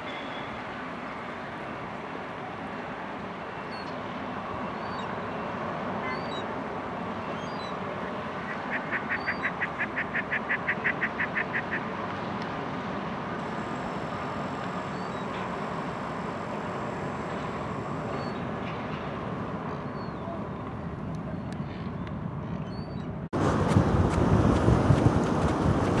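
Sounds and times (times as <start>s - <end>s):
harbour and ship rumble: 0.0s - 26.0s
seagulls calling: 6.0s - 6.5s, 7.3s - 11.9s, 17.4s - 18.5s.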